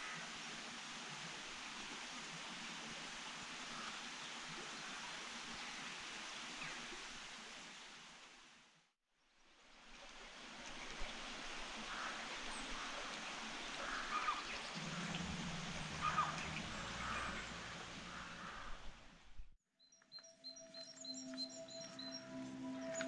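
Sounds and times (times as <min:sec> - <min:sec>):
low hum: 0:14.7 - 0:19.5.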